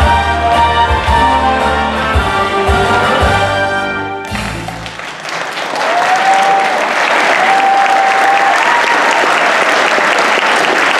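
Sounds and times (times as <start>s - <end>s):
audience applause: 4.2s - 10.9s
crowd high calls: 5.1s - 10.9s.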